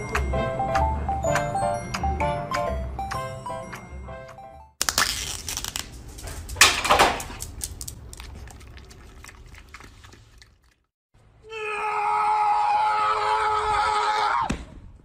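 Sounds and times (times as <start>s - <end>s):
background music: 0.0s - 4.8s.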